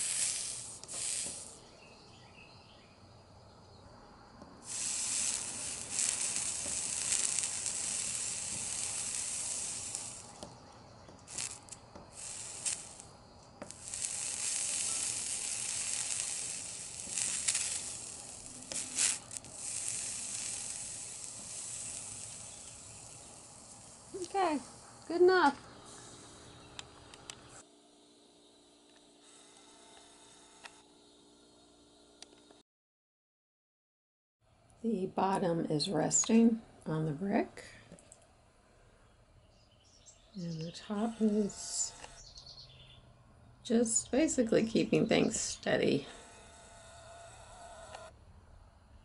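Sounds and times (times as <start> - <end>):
flux sizzling: 0.0 - 1.6, 4.6 - 10.6, 11.2 - 26.7
sharp crackles: 0.0 - 1.7, 4.6 - 27.6.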